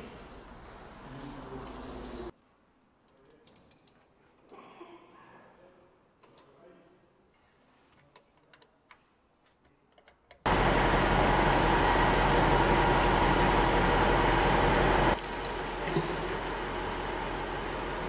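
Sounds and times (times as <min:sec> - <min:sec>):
machine noise with low hum: 0:10.5 - 0:18.0.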